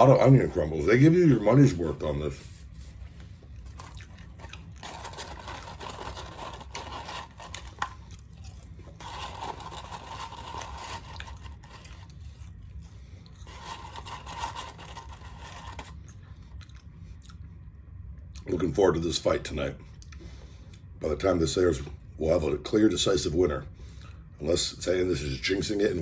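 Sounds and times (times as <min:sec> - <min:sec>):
chewing: 0:03.4 - 0:14.1, 0:15.5 - 0:17.6
paper bag crinkling: 0:03.7 - 0:12.5, 0:13.4 - 0:16.0.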